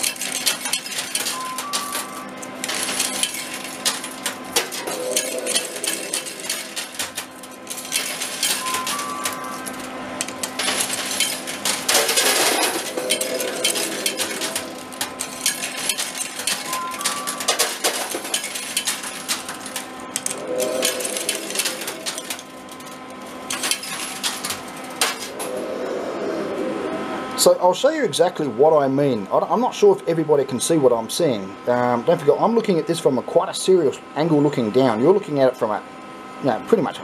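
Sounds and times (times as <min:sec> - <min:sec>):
coins clinking on metal: 0:00.0 - 0:25.4
machine hum: 0:00.0 - 0:29.3.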